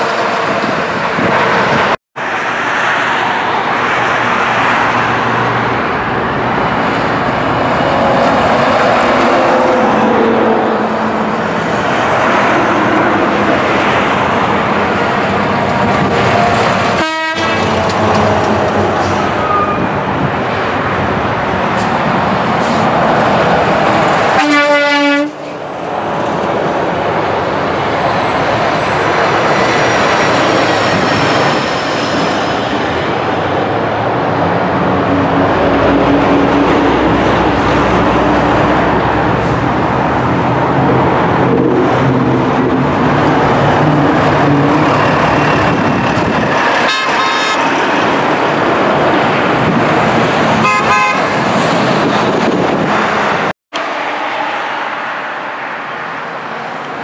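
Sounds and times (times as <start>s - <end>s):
train rolling past: 0.0s - 56.8s
train horn toot: 16.9s - 18.4s, 24.4s - 25.4s, 46.9s - 47.7s, 50.6s - 51.3s.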